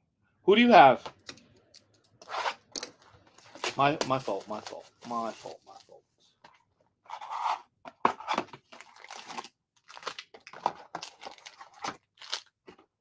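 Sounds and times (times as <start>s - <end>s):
plastic wrapping tearing and crinkling: 8.7s - 12.8s.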